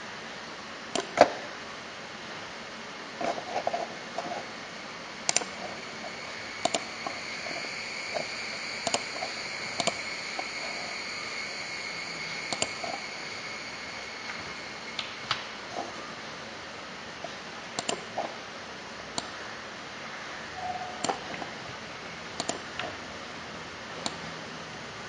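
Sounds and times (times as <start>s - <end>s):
faint high whine: 0.0s - 25.0s
steady background hiss: 0.0s - 25.0s
computer mouse clicks: 0.9s - 1.3s, 5.3s - 5.6s, 6.6s - 10.0s, 12.5s - 13.0s, 17.8s - 18.2s, 19.1s - 19.4s, 21.0s - 21.5s, 22.4s - 23.0s, 24.0s - 24.2s.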